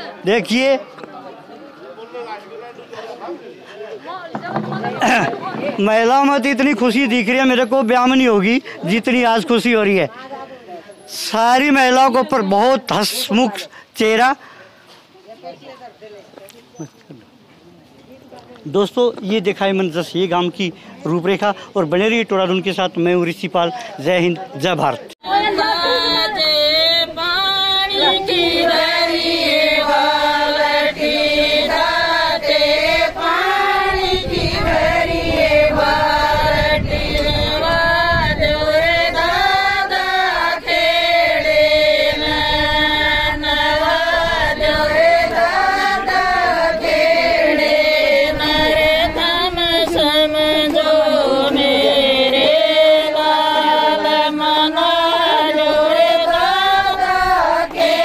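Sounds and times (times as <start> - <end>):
women singing in unison: 25.2 - 58.0.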